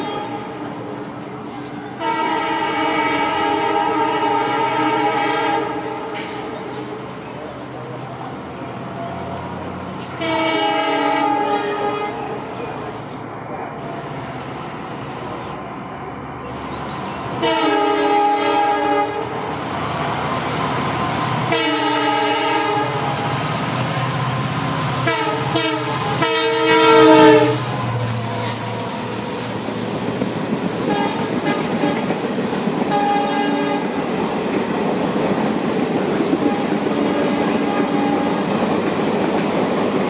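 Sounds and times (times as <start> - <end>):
train wheels rumbling on rails: 0.0 - 40.0
locomotive horn blasts: 2.0 - 6.5, 10.1 - 12.4, 17.4 - 19.4, 21.5 - 23.1, 25.0 - 27.7, 30.9 - 32.2, 32.9 - 34.0, 36.4 - 38.5.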